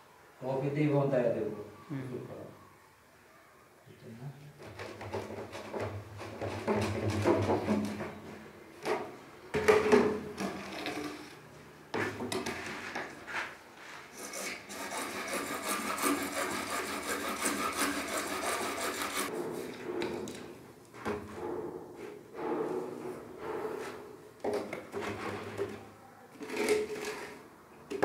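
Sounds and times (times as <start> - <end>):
hacksaw sawing plastic pipe: 4.6 - 7.7, 14.1 - 19.3
hollow knocks of plastic pipes: 4.6 - 10.8.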